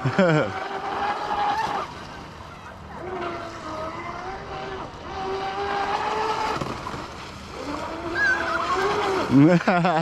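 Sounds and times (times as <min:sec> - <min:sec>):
rc speedboat motor whine: 0:00.0 - 0:10.0.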